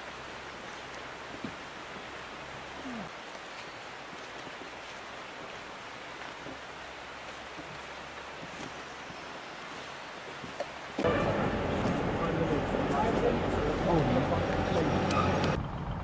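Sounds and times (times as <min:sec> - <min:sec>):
low hum: 0:11.0 - 0:16.0.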